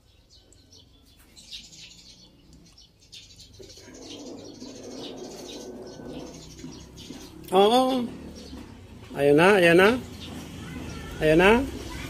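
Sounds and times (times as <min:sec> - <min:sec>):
birds chirping: 0:00.0 - 0:12.0
low bird cooing: 0:03.5 - 0:07.3.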